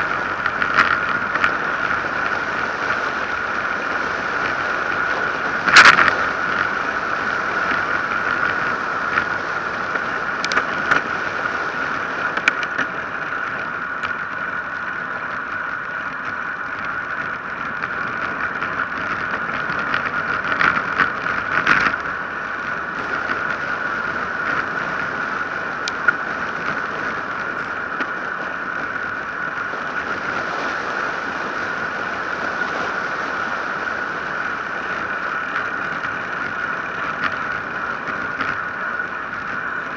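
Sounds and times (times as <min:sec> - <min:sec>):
wind and tyre noise: 0:00.0 - 0:39.9.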